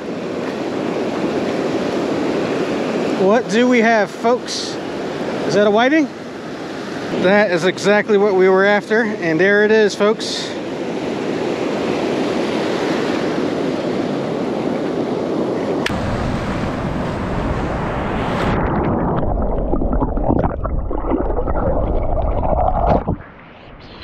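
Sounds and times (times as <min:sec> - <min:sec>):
surf washing on beach: 0:00.0 - 0:24.0
muffled rumbling with crackles: 0:15.9 - 0:24.0.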